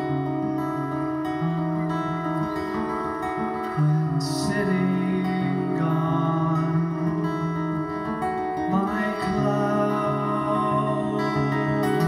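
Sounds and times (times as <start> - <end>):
amplified acoustic guitar: 0.0 - 12.0
man singing: 3.6 - 12.0.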